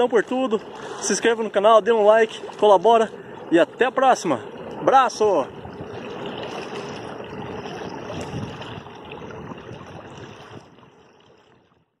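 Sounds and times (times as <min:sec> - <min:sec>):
water lapping and splashing: 0:00.0 - 0:12.0
wind buffeting microphone: 0:04.6 - 0:11.0.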